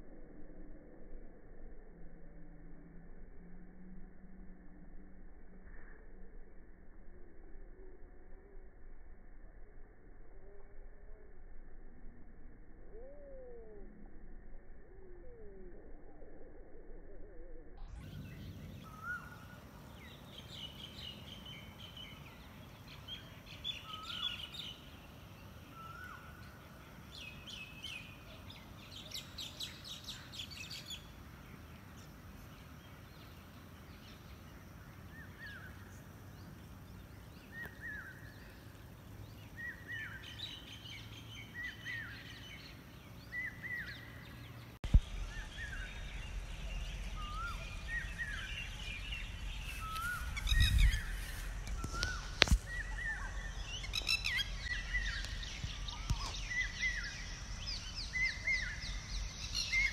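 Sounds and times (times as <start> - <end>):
low outdoor rumble: 17.7 - 59.9
birds singing and calling: 17.9 - 59.9.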